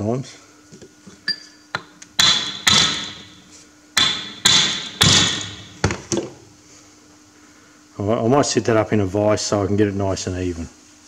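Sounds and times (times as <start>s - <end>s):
sharp metallic knocks on axle: 1.8s - 3.4s, 4.0s - 6.0s.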